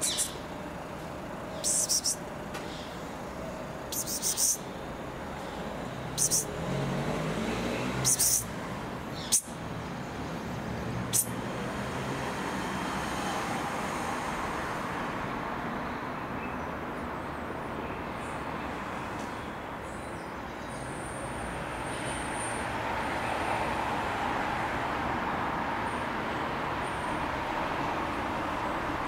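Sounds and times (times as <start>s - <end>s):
vehicle passing: 0.0s - 15.6s
road traffic noise: 0.0s - 29.0s.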